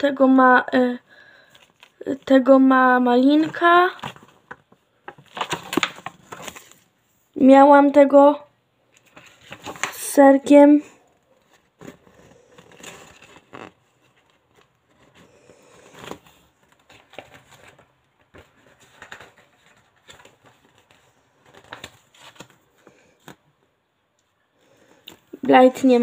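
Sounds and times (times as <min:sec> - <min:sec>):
paper rustling and tapping: 0:03.3 - 0:06.8, 0:09.0 - 0:10.1, 0:16.0 - 0:23.4.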